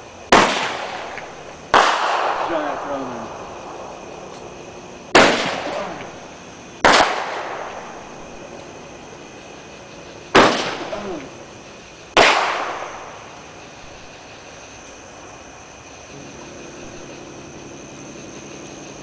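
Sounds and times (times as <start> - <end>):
fireworks banging: 0.3 - 14.3.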